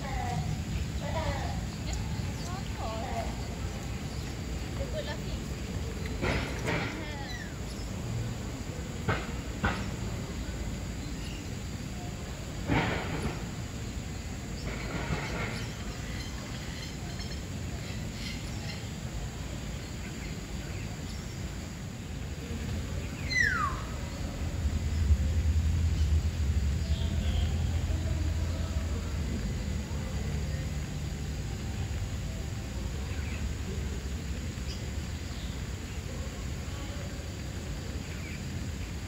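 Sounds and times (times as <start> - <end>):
background hiss: 0.0 - 39.0
falling whistled bird call: 23.2 - 23.9
sharp bird calls: 23.2 - 24.0.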